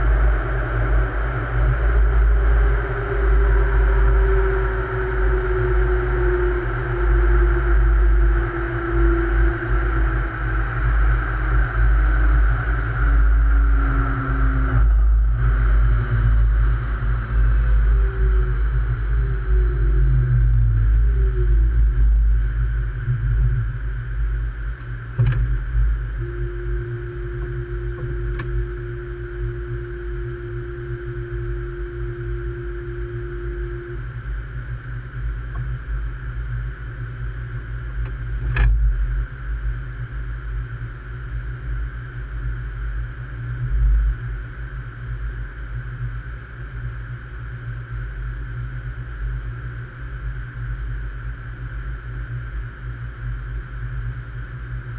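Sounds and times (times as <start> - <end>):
steady tone: 0.0 - 40.4
train equipment humming: 0.0 - 48.0.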